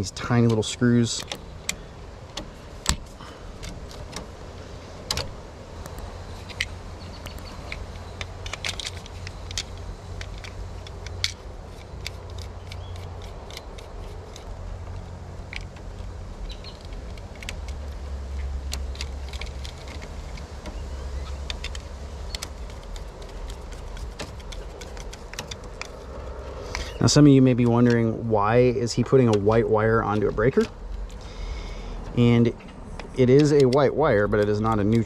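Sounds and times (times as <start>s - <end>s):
low steady rumble: 0.0s - 35.0s
screwdriver clicks and scrapes: 5.8s - 15.8s, 16.4s - 27.0s.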